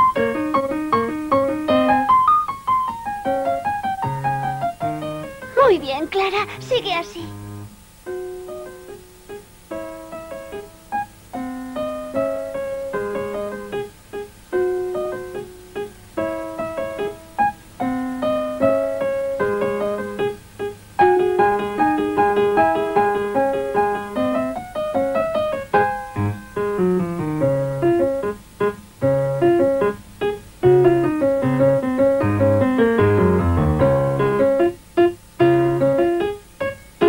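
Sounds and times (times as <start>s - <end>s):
solo piano melody: 0.0s - 5.7s, 7.3s - 37.0s.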